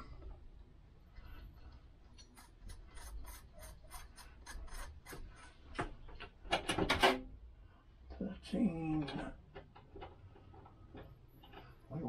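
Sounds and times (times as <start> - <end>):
metal threads grating: 2.1 - 5.6.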